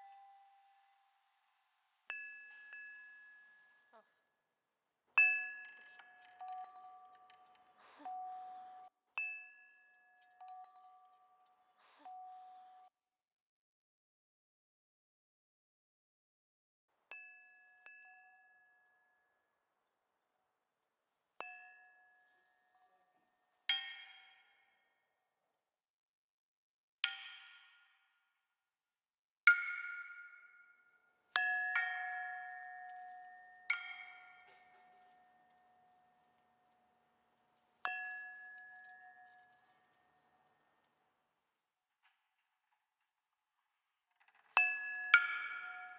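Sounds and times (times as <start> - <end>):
small brass bells ringing: 2.1 - 4.0.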